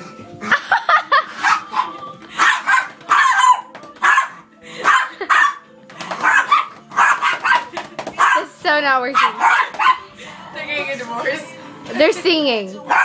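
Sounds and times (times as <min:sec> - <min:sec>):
small dogs barking: 0:01.3 - 0:10.2.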